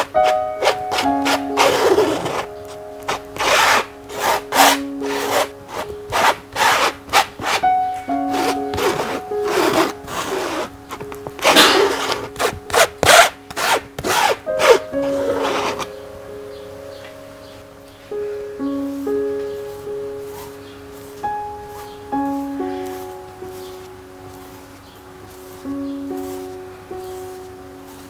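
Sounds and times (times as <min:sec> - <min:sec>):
palette knife scraping canvas: 0:00.0 - 0:02.5, 0:03.1 - 0:07.6, 0:08.3 - 0:10.7, 0:11.4 - 0:15.9
soft background music: 0:00.0 - 0:28.0.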